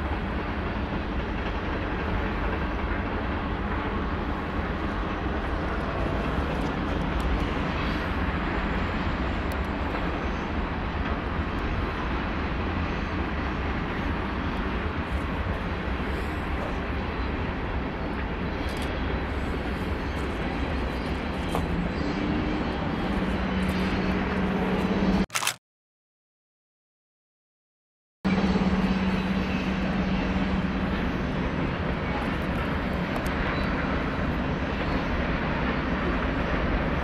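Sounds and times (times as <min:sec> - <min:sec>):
freight train rumbling by: 0:00.0 - 0:25.2, 0:28.3 - 0:37.0.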